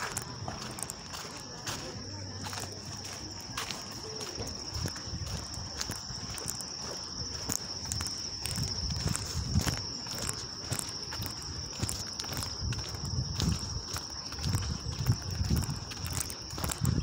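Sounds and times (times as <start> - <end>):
footsteps on stone paving: 0.0 - 17.0
high-pitched insect trill: 0.0 - 17.0
low thuds of walking: 0.0 - 17.0
wind on microphone: 4.4 - 17.0.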